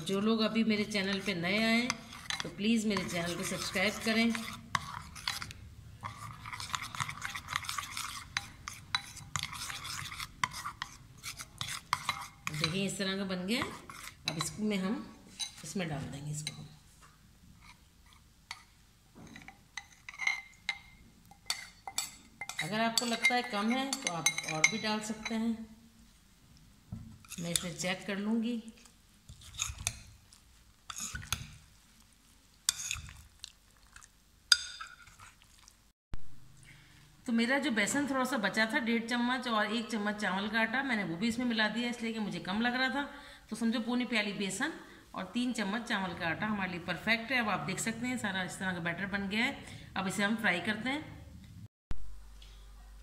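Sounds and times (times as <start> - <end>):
spoon stirring thick batter: 0.0 - 25.5, 27.1 - 35.9
spoon clinking against glass bowl: 19.4 - 25.4, 34.5 - 35.1.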